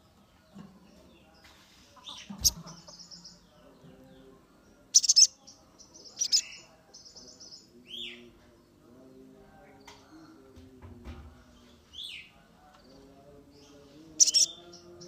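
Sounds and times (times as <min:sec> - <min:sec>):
sunbird chirping and trilling: 0:04.7 - 0:08.3, 0:13.6 - 0:15.0.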